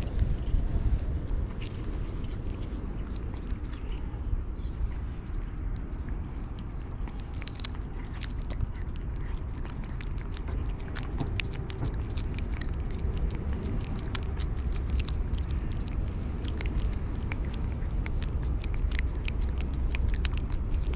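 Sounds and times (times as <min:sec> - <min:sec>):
cat licking wet clicks: 0:00.0 - 0:04.3, 0:04.9 - 0:20.9.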